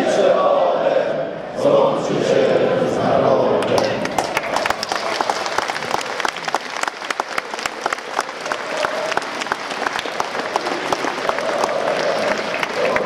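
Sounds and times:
faint crowd chanting: 0:00.0 - 0:04.9, 0:07.5 - 0:13.0
crowd clapping: 0:03.6 - 0:13.0
crowd din: 0:07.4 - 0:13.0.

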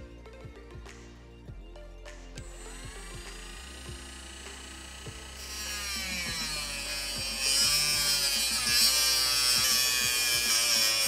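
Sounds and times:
rotary tool whining: 0:02.4 - 0:11.0
grinding hiss of cutting metal: 0:02.6 - 0:11.0.

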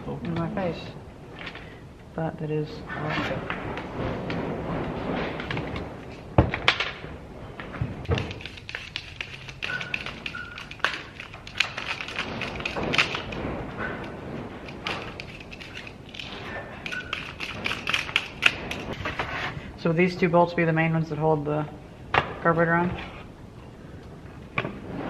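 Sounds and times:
hand tools and parts clicking: 0:08.0 - 0:19.0.

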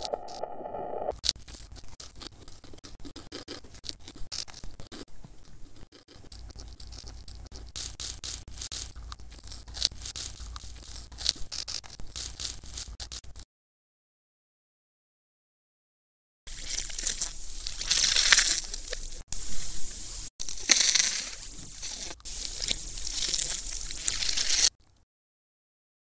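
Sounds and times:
steady held tone: 0:00.0 - 0:01.1
low hum: 0:00.0 - 0:01.2
old film crackling and popping: 0:00.0 - 0:13.4, 0:16.5 - 0:19.5, 0:20.2 - 0:25.0.

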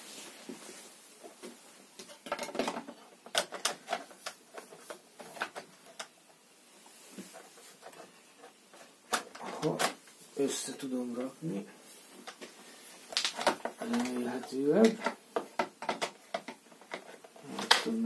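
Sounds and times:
plastic and metal parts knocking: 0:13.3 - 0:17.8.

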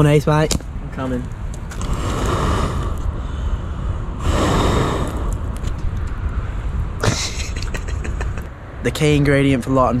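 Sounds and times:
person blowing on embers: 0:01.7 - 0:07.0.

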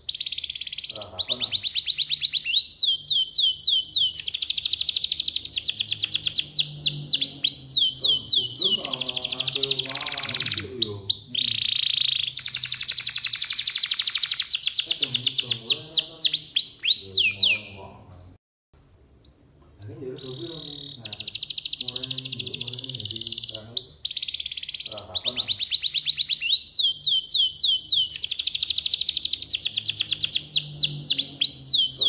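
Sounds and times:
canary singing trills: 0:00.0 - 0:32.0.

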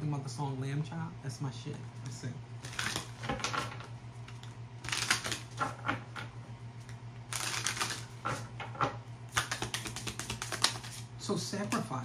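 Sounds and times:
steady low hum: 0:00.0 - 0:12.0
cards being shuffled: 0:02.6 - 0:06.3, 0:07.3 - 0:08.5, 0:09.3 - 0:12.0.

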